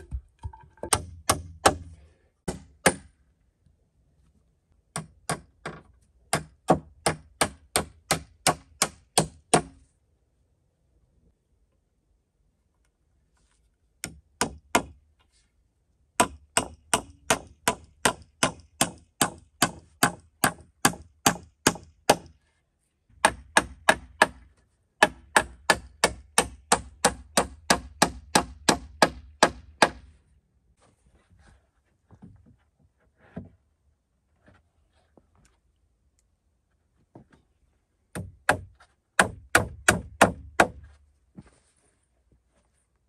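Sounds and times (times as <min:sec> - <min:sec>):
hammer driving nails into wood: 0:00.8 - 0:03.2, 0:04.9 - 0:09.8, 0:14.0 - 0:15.0, 0:16.2 - 0:22.4, 0:23.2 - 0:30.1, 0:38.1 - 0:40.8.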